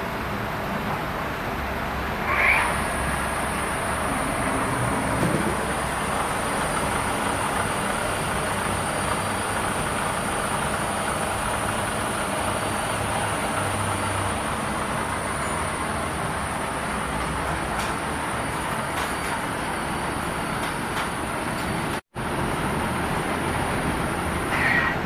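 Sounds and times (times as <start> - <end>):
machine rumble and hum: 0.0 - 19.0.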